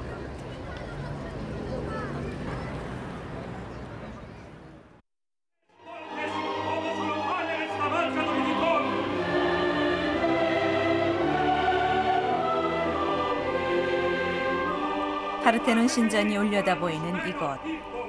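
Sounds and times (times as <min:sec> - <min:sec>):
choir singing sustained notes: 0:05.7 - 0:18.0
orchestral music: 0:05.7 - 0:18.0.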